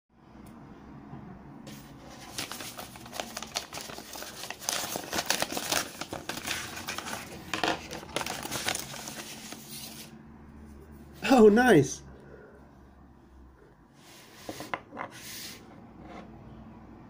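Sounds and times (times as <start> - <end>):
paper envelope crinkling: 1.7 - 10.1.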